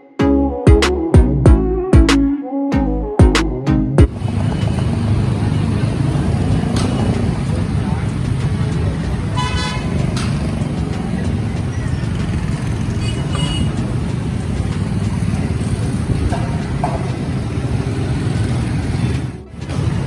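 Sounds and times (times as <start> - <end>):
traffic rumble: 4.0 - 20.0
vehicle horn toots: 9.4 - 10.0, 13.0 - 13.8.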